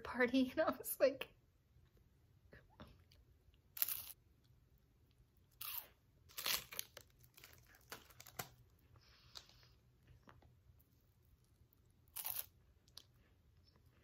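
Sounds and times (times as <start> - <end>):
wafer cookie crunching: 3.6 - 14.0.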